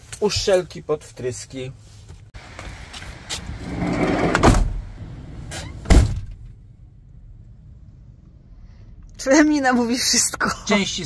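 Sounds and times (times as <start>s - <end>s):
door shutting with heavy thud: 3.8s - 6.5s.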